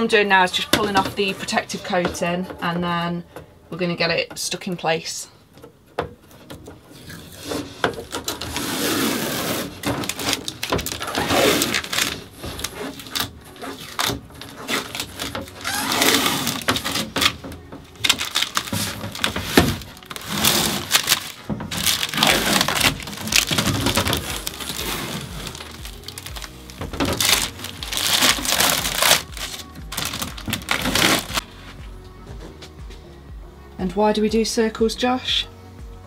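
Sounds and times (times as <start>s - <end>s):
plastic film crackling: 6.4s - 31.8s.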